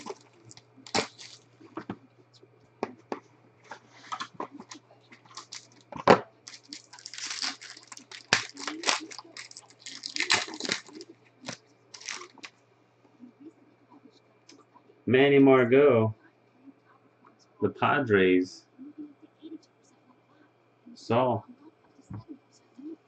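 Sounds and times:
foil wrapper crinkling and tearing: 0.0s - 1.5s, 4.6s - 12.5s.

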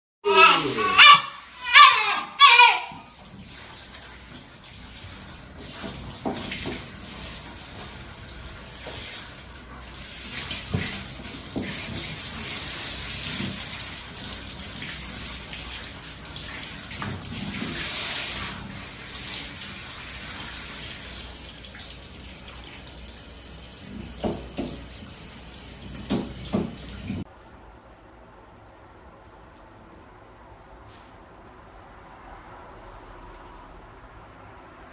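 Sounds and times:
water splashes and knocks: 2.9s - 27.3s.

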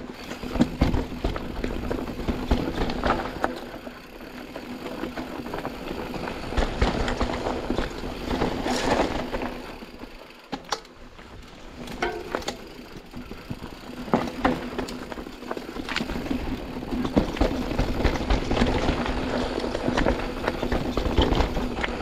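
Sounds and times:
bike clicks and rattles: 0.0s - 22.0s
bike tyres on dirt trail: 0.0s - 22.0s.

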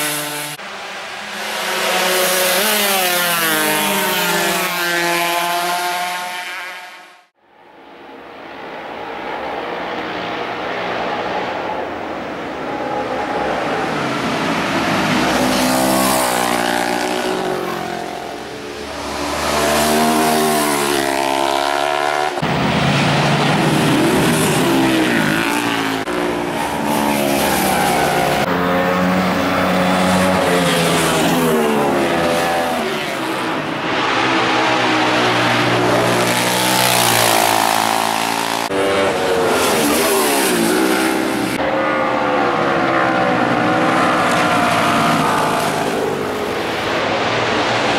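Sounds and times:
racing motorcycles passing: 0.0s - 7.3s, 8.0s - 47.9s.

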